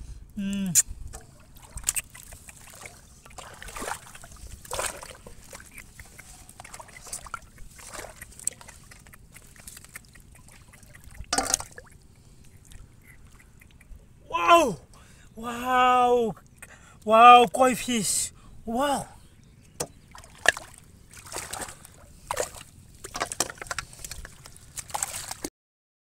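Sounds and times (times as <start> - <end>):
muddy water splashing: 0.7 - 15.1, 19.8 - 25.5.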